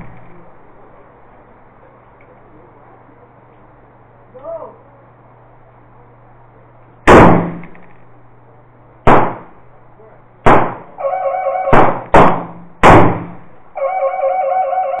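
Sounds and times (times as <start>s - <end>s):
pistol gunshots: 7.1s - 8.0s, 9.0s - 9.6s, 10.4s - 11.0s, 11.7s - 13.5s.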